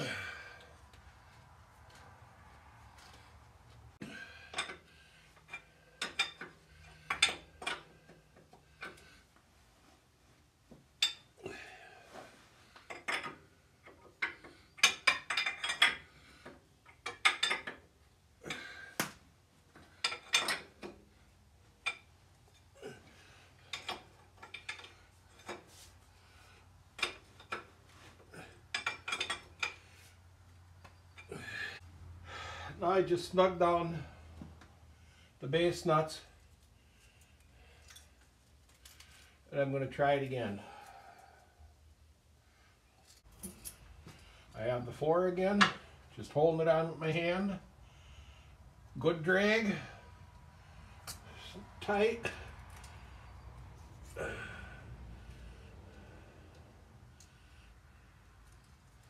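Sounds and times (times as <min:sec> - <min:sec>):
wrench clinking on metal: 0:12.9 - 0:16.2, 0:16.9 - 0:17.9, 0:19.9 - 0:21.0, 0:28.7 - 0:29.8.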